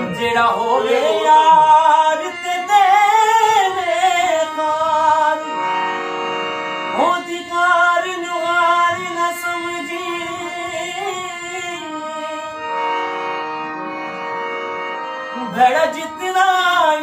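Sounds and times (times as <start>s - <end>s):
man singing: 0.0s - 5.7s, 6.9s - 12.6s, 15.3s - 17.0s
harmonium chords: 0.0s - 17.0s.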